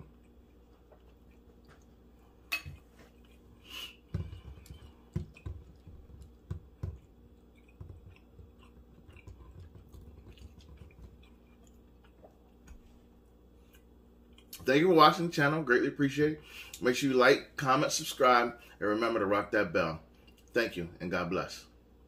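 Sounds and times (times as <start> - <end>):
person chewing food: 0.0 - 14.6.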